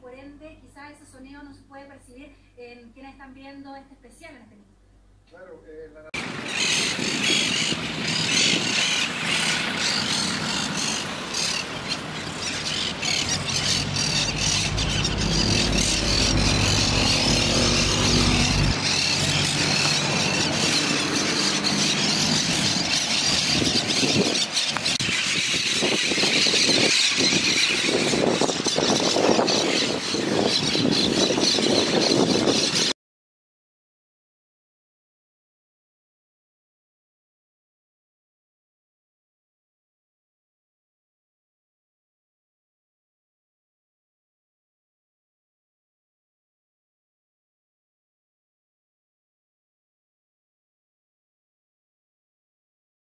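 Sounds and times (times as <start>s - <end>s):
road traffic: 6.2s - 32.8s
birds calling: 6.2s - 33.0s
vehicle low rumble: 7.5s - 25.0s.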